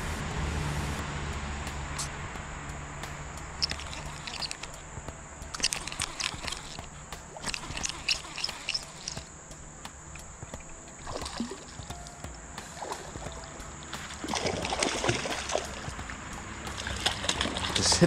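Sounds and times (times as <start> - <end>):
fishing reel clicks and taps: 3.6 - 4.8, 5.4 - 9.3.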